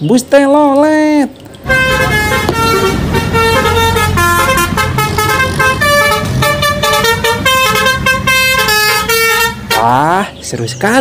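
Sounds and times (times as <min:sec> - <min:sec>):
low rumble of bus: 0:01.3 - 0:11.0
musical bus horn tune: 0:01.6 - 0:10.0.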